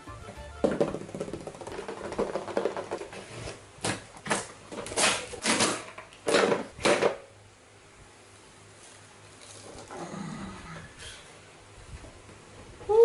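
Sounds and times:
cardboard rustling and scraping: 0:01.7 - 0:03.6.

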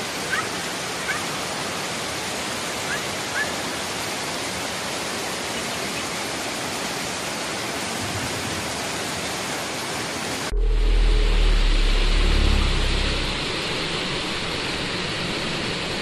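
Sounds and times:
floodwater roaring: 0:07.0 - 0:16.0.

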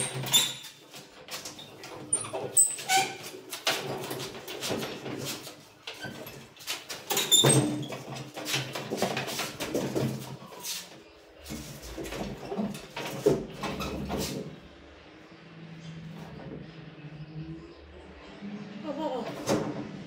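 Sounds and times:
board scraping on metal framing: 0:00.0 - 0:14.6.

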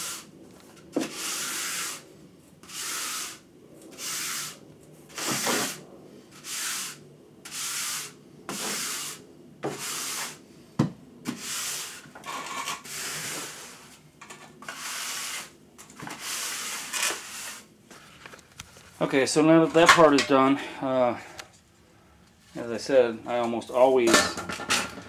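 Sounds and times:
wooden float scraping mortar: 0:00.9 - 0:02.0, 0:02.6 - 0:05.8, 0:06.4 - 0:10.4, 0:11.3 - 0:14.0, 0:14.6 - 0:18.1.

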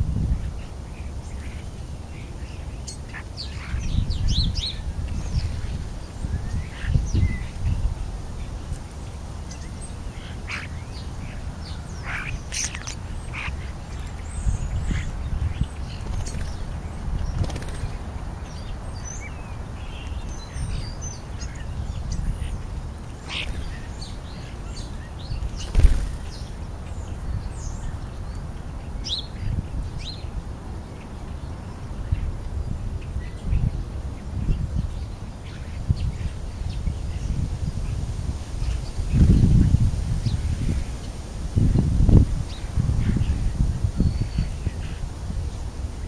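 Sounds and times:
starlings chirping and whistling: 0:00.4 - 0:07.8, 0:09.5 - 0:28.4.

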